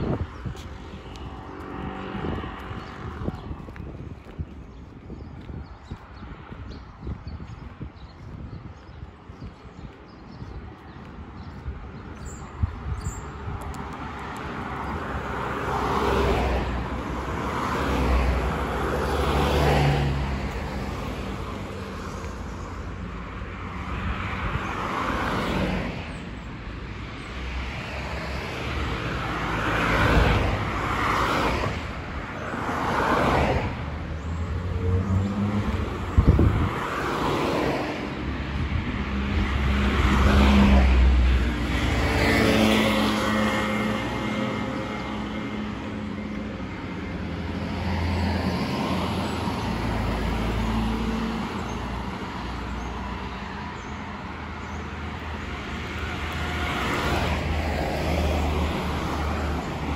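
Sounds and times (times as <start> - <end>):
cars passing: 0.0 - 59.9.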